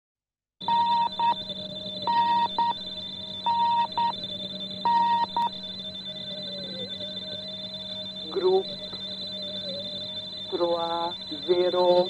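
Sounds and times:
electronic beeps: 0.6 - 12.0
steady whine and hum: 0.6 - 12.0
radio noise: 8.1 - 9.8, 10.4 - 12.0.

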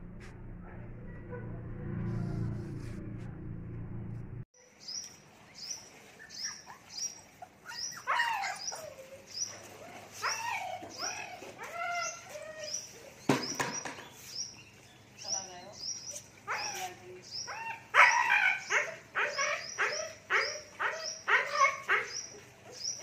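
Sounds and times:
puppy whining and yelping: 6.2 - 13.3, 17.5 - 23.0.

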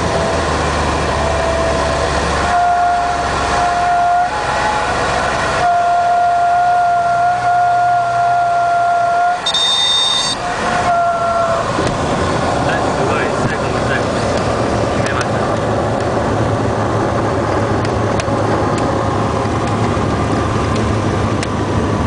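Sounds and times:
aircraft engine hum: 0.0 - 22.0
stall warning horn: 1.1 - 11.9
brief high squeal: 9.4 - 11.6.

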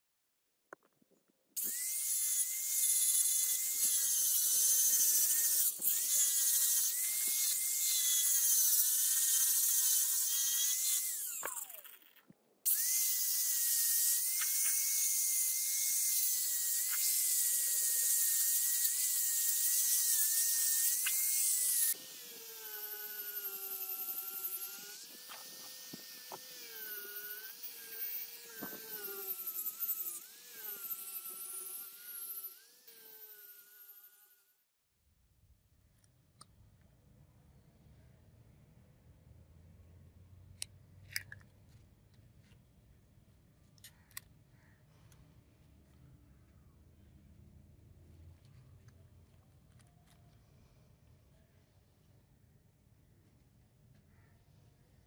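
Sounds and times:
grinder motor whine: 1.6 - 12.1, 12.7 - 34.5.

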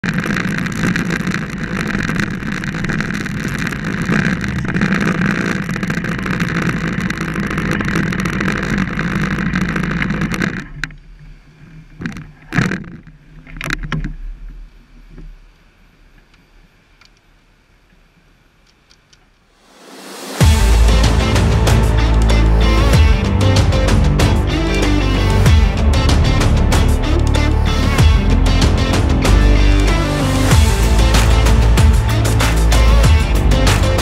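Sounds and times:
motorcycle engine: 19.6 - 34.0.

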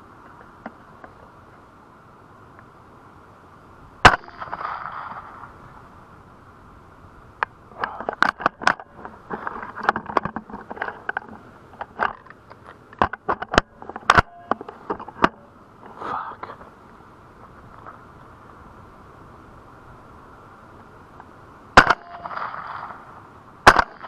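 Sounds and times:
suppressed rifle shot: 4.0 - 5.5, 21.8 - 24.0
sharp clicks and knocks: 7.4 - 15.4.

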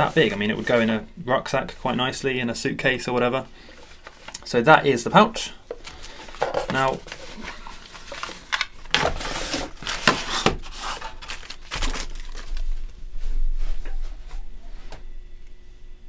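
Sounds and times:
cloth and paper rustling: 5.8 - 14.8.

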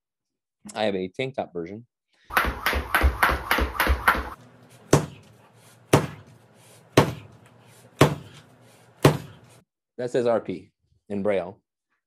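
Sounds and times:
jump rope striking rubber floor: 2.3 - 4.4.

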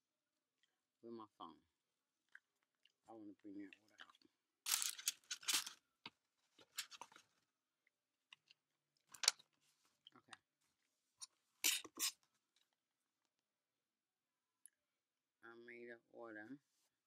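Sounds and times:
device handling rustles: 4.7 - 5.8, 6.6 - 7.3.

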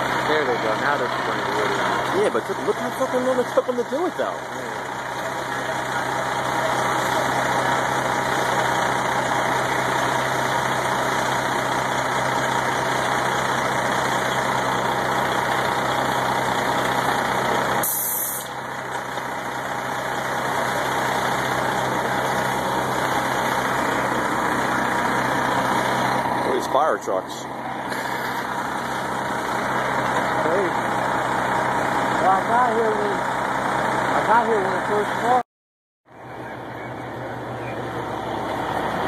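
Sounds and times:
diesel engine running: 0.0 - 35.4, 36.1 - 39.0
brief hiss: 17.8 - 18.5.

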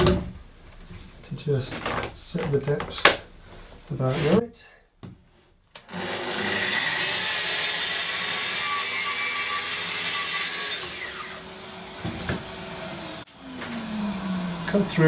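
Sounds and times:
circular saw cutting wood: 5.8 - 15.0.

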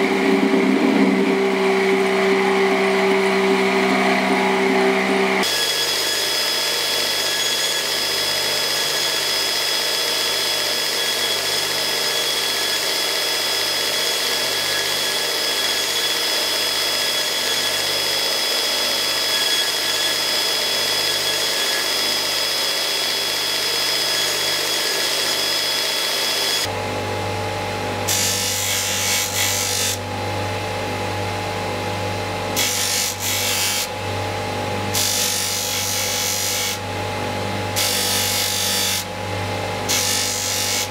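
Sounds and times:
humming motor: 0.0 - 5.6, 26.6 - 40.9
belt grinder whining: 0.0 - 26.7, 28.1 - 30.2, 32.4 - 40.9.

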